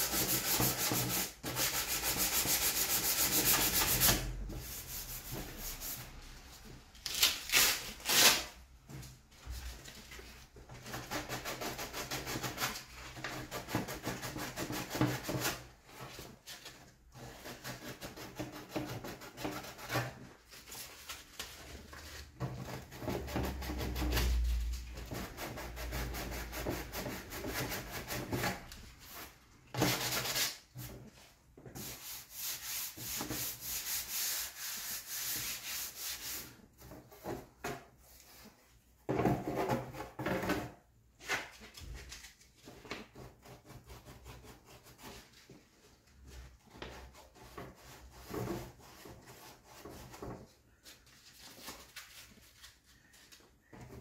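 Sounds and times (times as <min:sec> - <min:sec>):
sandpaper rubbing on plastic: 0:00.0 - 0:06.2, 0:31.8 - 0:36.6.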